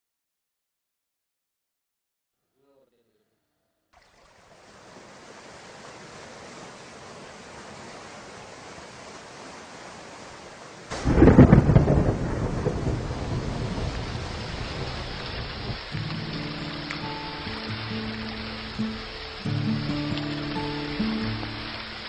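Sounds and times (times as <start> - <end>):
steady rain hiss: 4.0 - 22.0
thunderclap rumbling: 10.9 - 16.8
music: 15.9 - 22.0.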